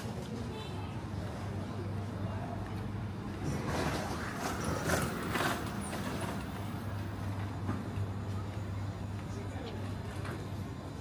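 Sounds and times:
rush of passing noise: 3.3 - 7.4.

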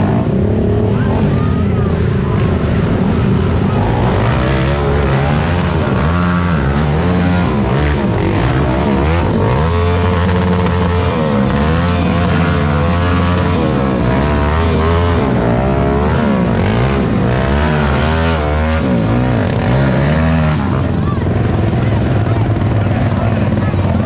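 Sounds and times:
atv engines revving: 0.0 - 24.0.

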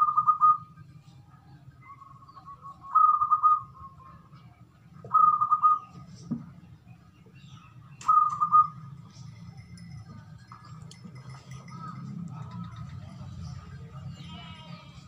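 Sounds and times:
dove cooing: 5.1 - 5.9, 8.0 - 9.0.

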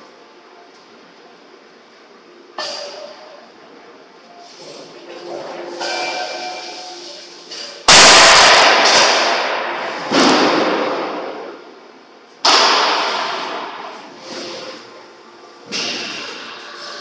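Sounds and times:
forging press crack and hiss: 5.7 - 11.4.

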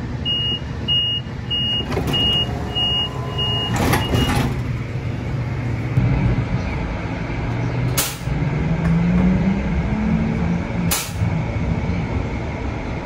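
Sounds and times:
light rail car rumble: 0.0 - 13.0
high electronic warning beeps: 0.3 - 4.4.

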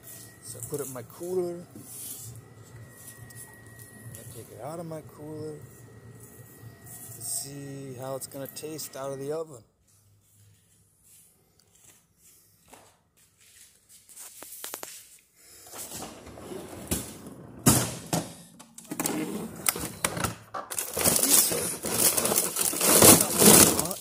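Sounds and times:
packages rustling and scraping: 0.0 - 8.8, 18.8 - 24.0.

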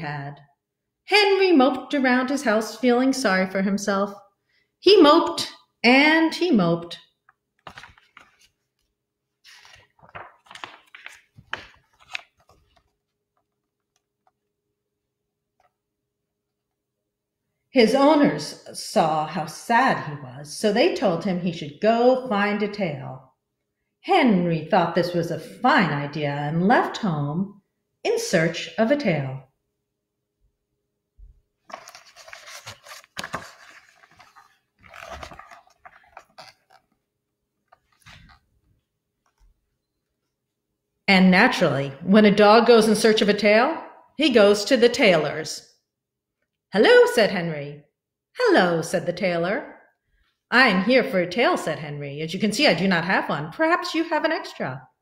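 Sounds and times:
book pages rustling: 7.2 - 14.4, 31.6 - 39.6.

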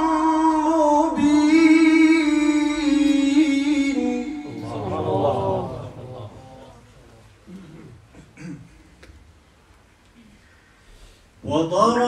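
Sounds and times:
man reciting melodically: 0.0 - 7.3, 11.4 - 12.0.

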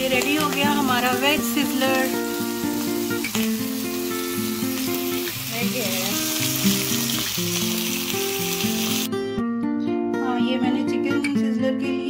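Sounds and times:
food sizzling on hot iron plate: 0.0 - 9.1
background music of held notes: 0.0 - 12.0.

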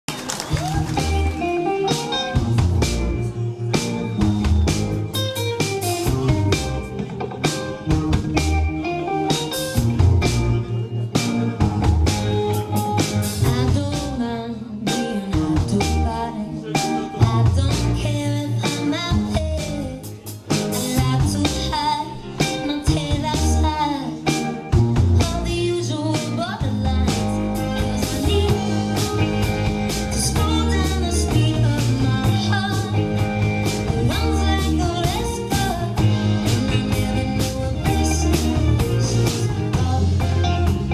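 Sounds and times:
drum kit: 0.1 - 40.9
electric bass guitar: 0.1 - 40.9
electric guitar: 0.1 - 40.9
woman singing: 13.4 - 40.9.

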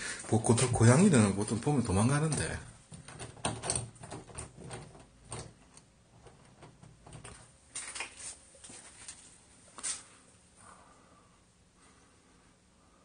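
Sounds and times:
door opening: 0.4 - 8.0
doorknob turning and rattling: 2.2 - 7.5.

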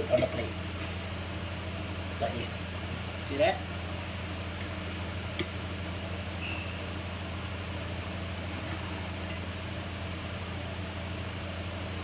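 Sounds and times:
kitchen fan humming: 0.0 - 12.0.

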